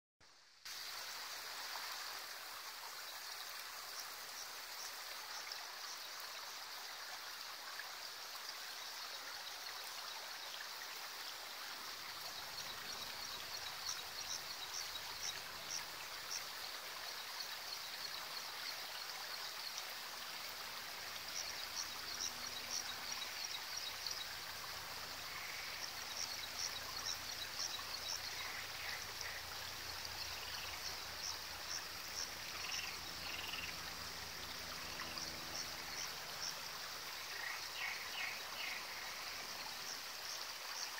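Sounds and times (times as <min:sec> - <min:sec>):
stream water over stones: 0:00.2 - 0:40.9.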